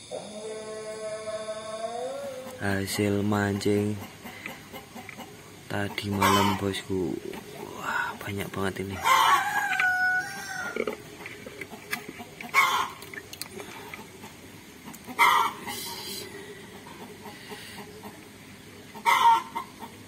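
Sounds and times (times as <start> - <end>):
chickens clucking: 2.3 - 20.0
loud chicken calls: 6.1 - 6.7, 8.9 - 11.2, 11.8 - 13.0, 14.8 - 18.2, 18.9 - 20.0.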